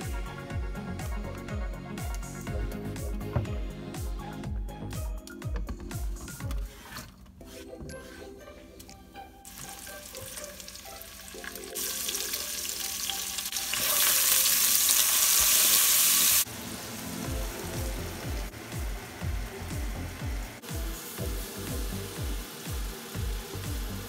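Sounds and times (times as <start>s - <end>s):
onions sizzling in hot oil: 9.5s - 24.0s.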